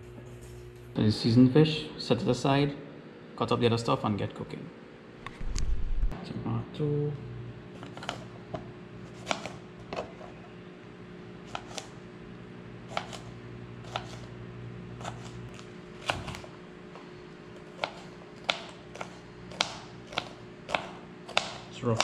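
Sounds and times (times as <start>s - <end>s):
low steady hum: 0.0s - 22.0s
knife tapping cutting board: 17.8s - 22.0s.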